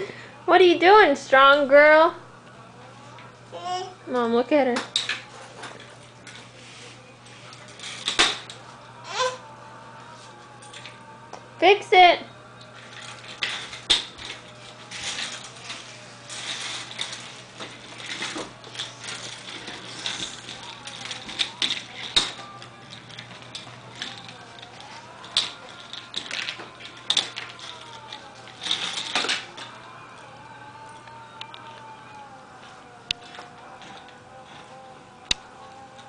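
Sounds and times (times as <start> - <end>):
toy stroller rattling on tile floor: 7.4 - 8.4, 12.8 - 30.0, 33.2 - 34.8.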